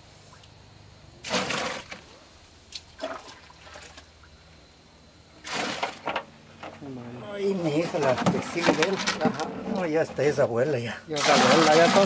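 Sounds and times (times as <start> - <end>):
liquid pouring and splashing: 11.2 - 12.0.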